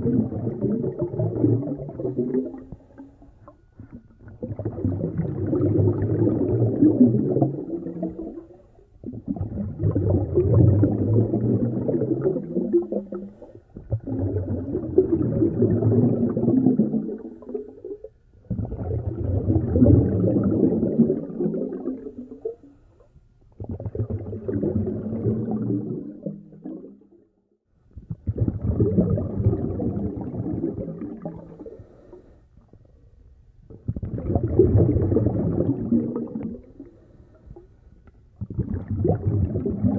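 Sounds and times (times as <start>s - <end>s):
muffled gurgling snorkel breathing: 0.0s - 17.8s, 27.9s - 39.9s.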